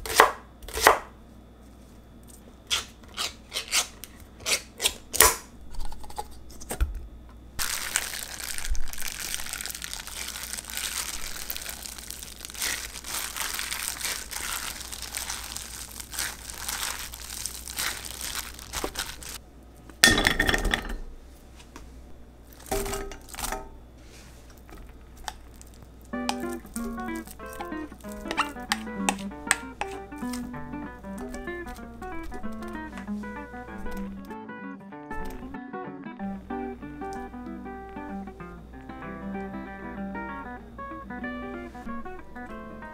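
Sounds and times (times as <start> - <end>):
plastic crinkling: 7.6 - 19.4, 24.4 - 34.3
food mashed in glass bowl: 27.6 - 30.4.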